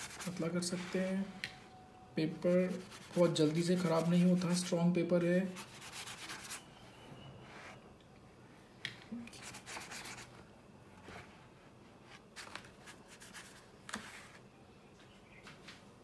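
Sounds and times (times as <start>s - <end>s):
paintbrush rubbing on paper: 0.0s - 1.2s, 2.6s - 6.6s, 9.4s - 10.3s.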